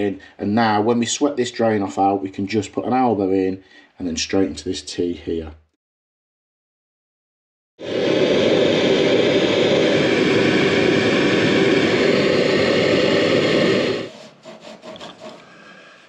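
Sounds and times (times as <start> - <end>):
blowtorch hissing: 7.8 - 15.4.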